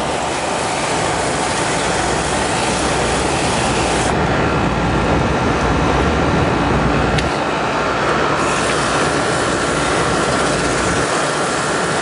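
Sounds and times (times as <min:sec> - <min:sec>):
water sprayer hissing: 0:00.0 - 0:04.1, 0:08.3 - 0:12.0.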